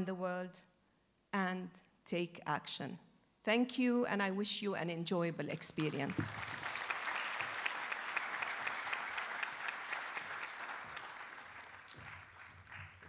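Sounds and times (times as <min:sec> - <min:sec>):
audience applauding: 0:05.8 - 0:13.0.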